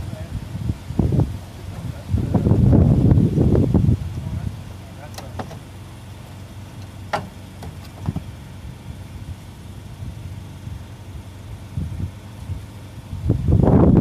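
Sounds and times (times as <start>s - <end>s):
engine idling: 0.0s - 14.0s.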